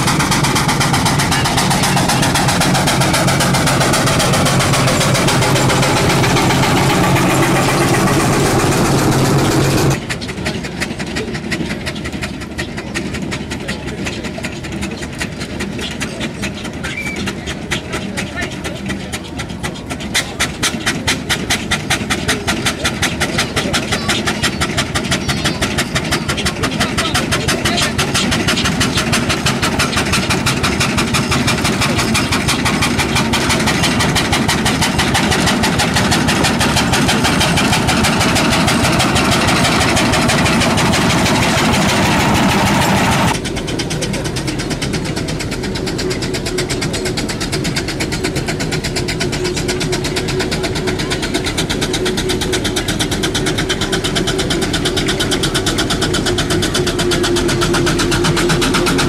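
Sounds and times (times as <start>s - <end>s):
steady hum: 0.0s - 10.0s, 32.6s - 45.6s
steam engine running: 0.0s - 59.0s.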